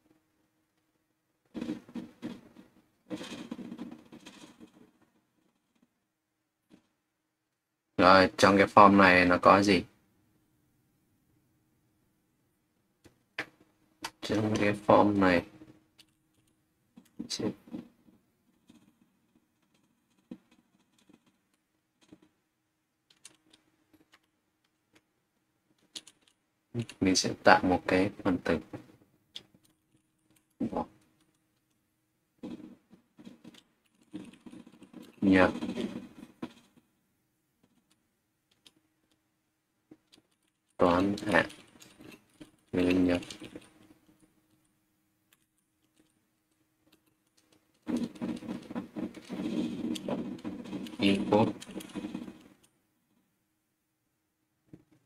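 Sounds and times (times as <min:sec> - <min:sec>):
keyboard typing: 0:18.5 - 0:22.4, 0:25.7 - 0:27.6, 0:32.4 - 0:36.8, 0:39.9 - 0:44.6, 0:45.3 - 0:52.8.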